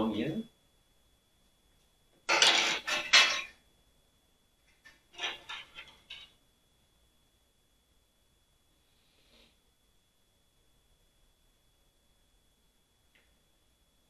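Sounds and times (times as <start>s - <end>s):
metal tools clinking and rattling: 2.3s - 3.5s, 5.2s - 6.3s.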